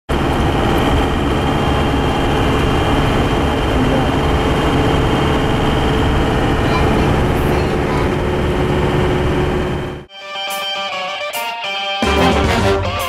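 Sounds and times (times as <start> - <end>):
engine and road noise: 0.1 - 10.1.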